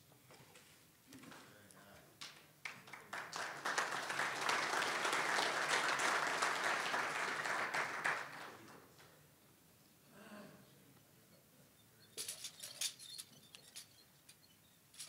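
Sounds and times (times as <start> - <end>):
people applauding: 2.6 - 8.9.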